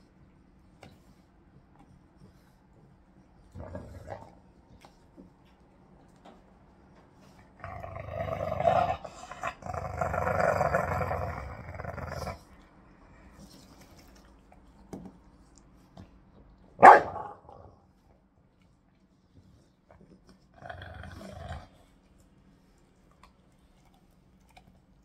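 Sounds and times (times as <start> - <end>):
dog growling: 3.5 - 4.4, 7.6 - 12.6, 20.5 - 21.9
dog barking: 16.8 - 17.7.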